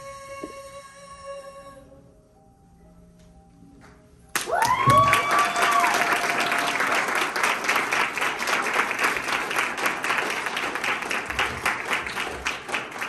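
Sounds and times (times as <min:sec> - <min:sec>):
audience clapping: 0:04.3 - 0:13.0
person cheering: 0:04.5 - 0:06.9.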